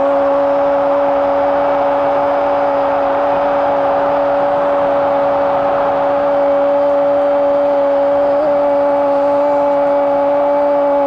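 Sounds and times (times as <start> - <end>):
loud stadium crowd: 0.0 - 11.0.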